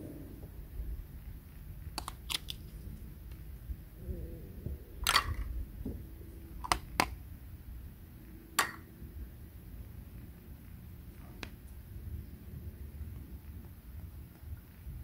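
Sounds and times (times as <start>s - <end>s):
plastic toy pieces clicking: 2.0s - 2.6s, 5.0s - 5.5s, 6.6s - 7.2s
plastic scraping: 2.0s - 2.8s, 5.0s - 5.5s.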